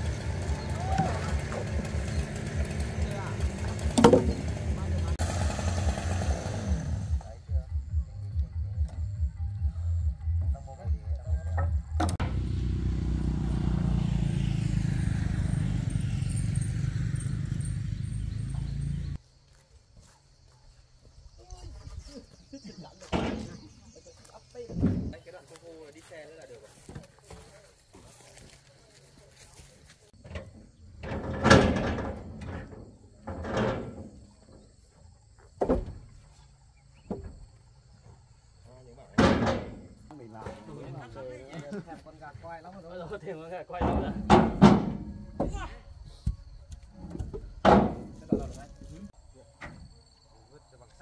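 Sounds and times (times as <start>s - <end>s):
engine running with fast pulse: 0.0s - 7.4s, 12.0s - 19.2s
knocks and clatter of objects: 1.0s - 5.1s, 30.2s - 34.5s.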